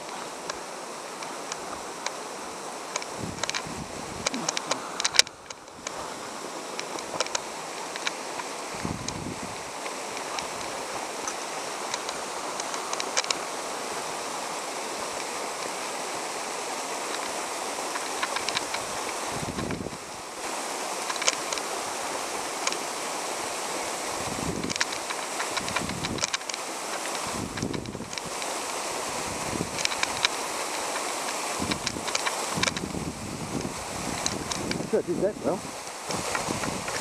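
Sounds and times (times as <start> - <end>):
waterfall rushing: 0.0 - 37.0
light clicks: 2.9 - 6.0, 6.7 - 9.2, 9.8 - 13.4, 17.1 - 18.8, 24.6 - 28.8, 29.7 - 32.9, 33.6 - 34.9.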